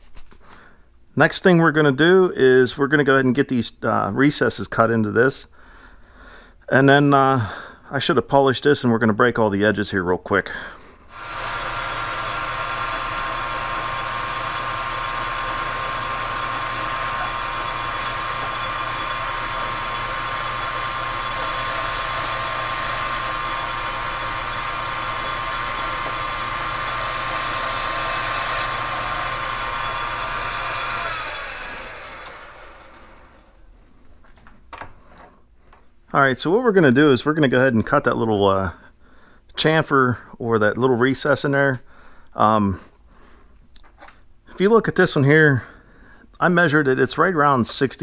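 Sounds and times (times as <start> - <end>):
lathe whining: 11.1 - 33.6.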